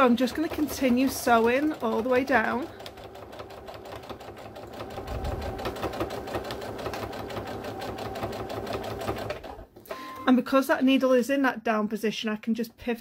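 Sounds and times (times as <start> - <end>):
electric sewing machine stitching: 0.0 - 10.1.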